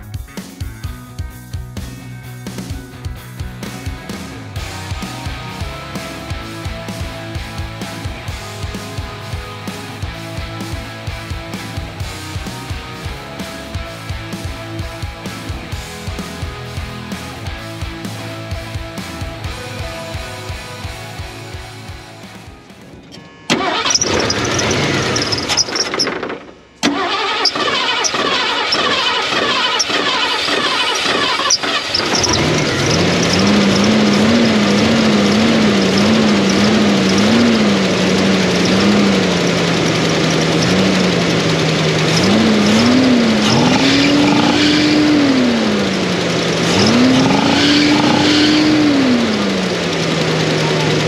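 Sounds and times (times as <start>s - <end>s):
engine idling and revving: 0.0s - 22.9s, 23.5s - 51.0s
starter cranking engine: 23.5s - 51.0s.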